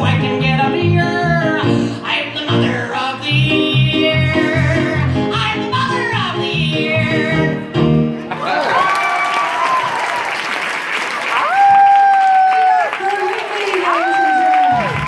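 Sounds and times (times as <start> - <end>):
woman singing: 0.0 - 7.8
audience applause and whoops: 8.3 - 15.0.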